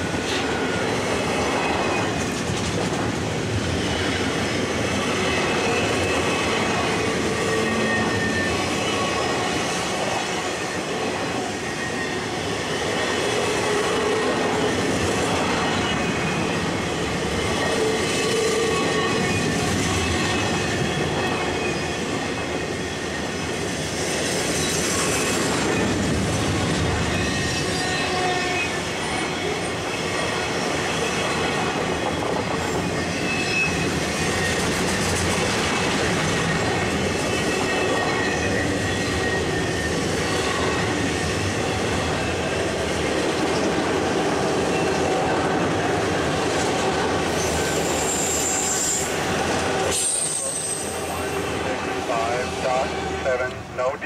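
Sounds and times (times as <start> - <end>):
train wheels rolling on rails: 0.0 - 54.0
high wheel squeals: 5.1 - 9.6, 47.3 - 53.2.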